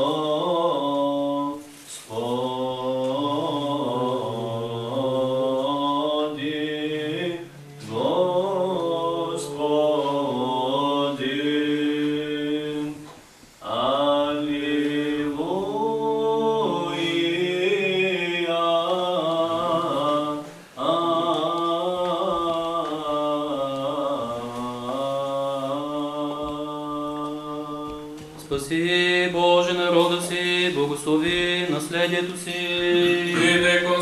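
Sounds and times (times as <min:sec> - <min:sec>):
a cappella liturgical chant: 0:00.0 - 0:34.0.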